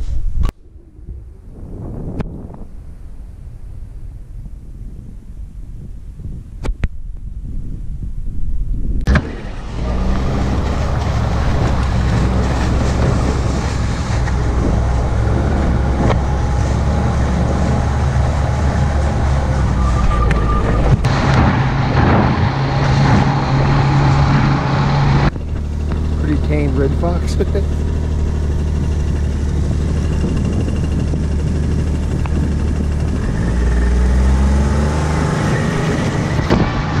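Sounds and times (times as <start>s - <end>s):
snowmobile engine running: 9.1s - 37.0s.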